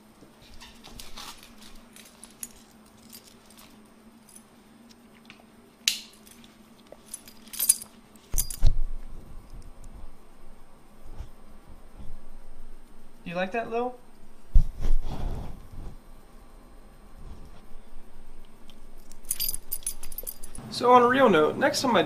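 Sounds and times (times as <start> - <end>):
steady low hum: 0.0 - 22.0
low thumps against camera: 14.5 - 16.0
dog tag jingling on collar: 19.2 - 20.6.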